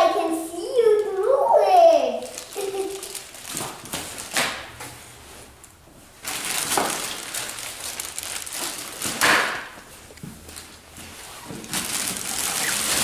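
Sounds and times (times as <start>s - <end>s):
plastic wrapping rustling: 2.1s - 5.5s, 6.1s - 13.0s.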